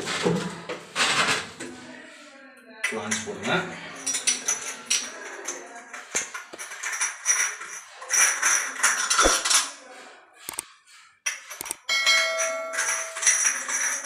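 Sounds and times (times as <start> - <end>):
metal flanges clinking and scraping: 4.0 - 9.8, 11.3 - 14.0.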